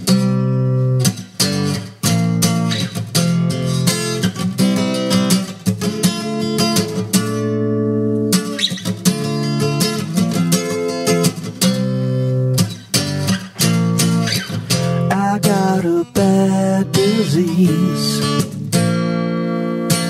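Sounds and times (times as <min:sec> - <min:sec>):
acoustic guitar strummed: 0:00.0 - 0:20.0.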